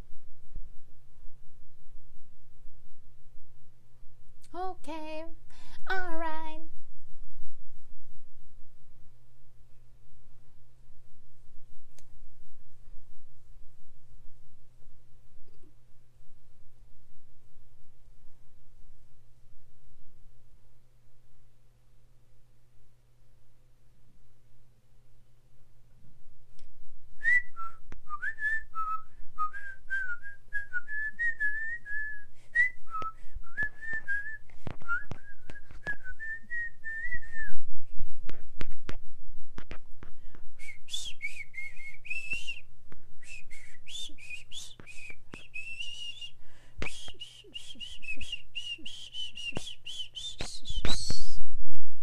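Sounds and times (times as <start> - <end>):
person whistling a tune: 27.2 - 37.6, 40.6 - 42.6, 43.2 - 51.9.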